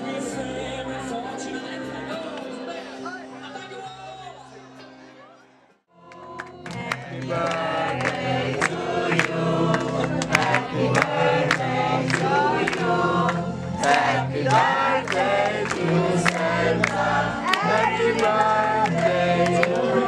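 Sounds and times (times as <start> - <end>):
group singing together: 6.0 - 20.0
people clapping in time: 6.0 - 20.0.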